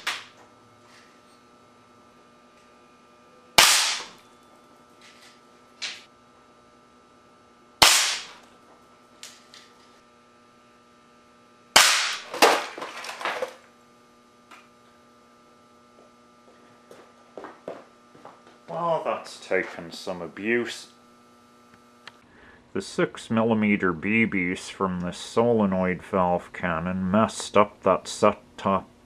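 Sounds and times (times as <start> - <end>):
air cannon firing cracks: 3.6 - 4.2, 7.8 - 8.4, 11.8 - 12.8.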